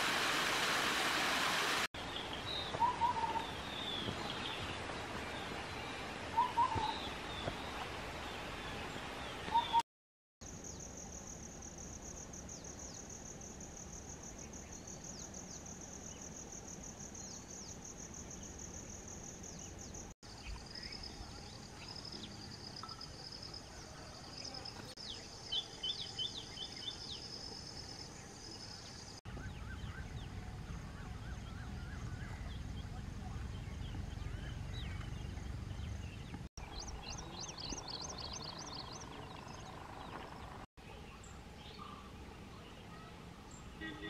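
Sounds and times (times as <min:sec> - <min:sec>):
bird chirps: 0:05.4 - 0:07.8, 0:28.5 - 0:44.0.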